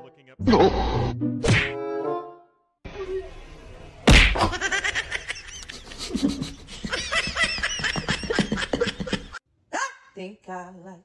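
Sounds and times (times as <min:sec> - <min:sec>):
sharp thud: 0:04.1 - 0:04.5
person laughing: 0:04.5 - 0:09.4.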